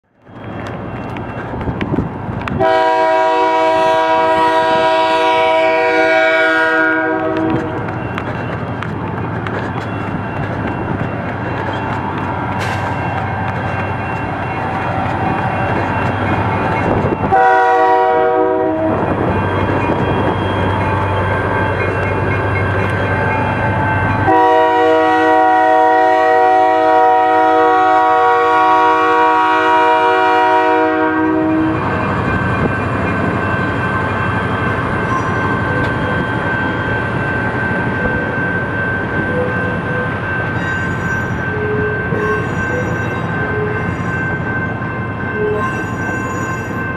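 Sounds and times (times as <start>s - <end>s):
passenger coaches rolling past: 0.0s - 46.9s
locomotive air horn blasts: 2.6s - 7.8s, 17.3s - 19.1s, 24.2s - 31.8s.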